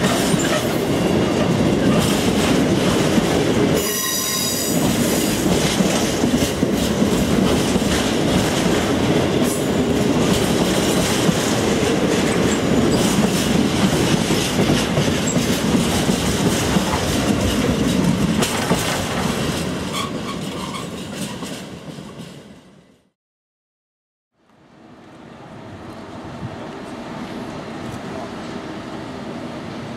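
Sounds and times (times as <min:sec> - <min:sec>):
freight train wheels clattering: 0:00.0 - 0:22.8.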